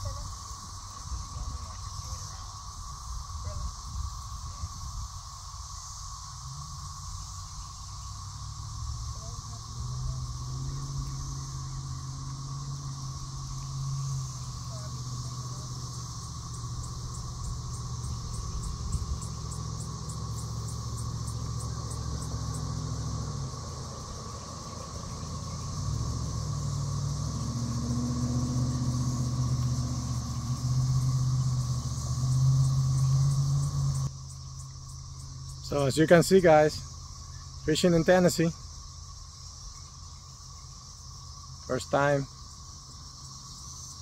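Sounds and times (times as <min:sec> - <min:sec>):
insect buzz: 0:00.0 - 0:44.0
low engine rumble: 0:00.0 - 0:44.0
fast high ticking calls: 0:05.8 - 0:38.6.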